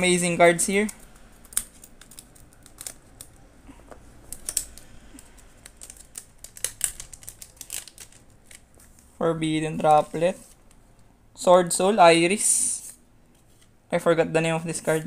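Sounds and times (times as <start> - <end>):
scissors snipping foil wrapper: 4.3 - 8.6
wrapper crinkling: 4.3 - 9.1.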